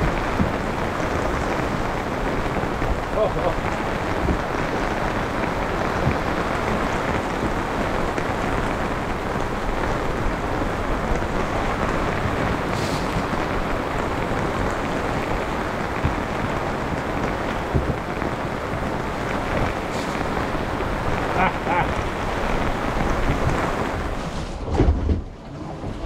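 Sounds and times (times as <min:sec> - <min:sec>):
rain pattering on canopy: 0:00.0 - 0:26.0.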